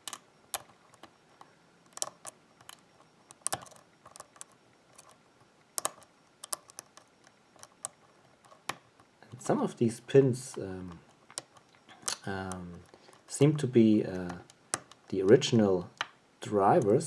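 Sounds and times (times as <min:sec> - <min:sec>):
lock pick clicking pins: 0:00.0 - 0:05.2, 0:05.8 - 0:09.1, 0:10.4 - 0:13.4, 0:14.1 - 0:16.1.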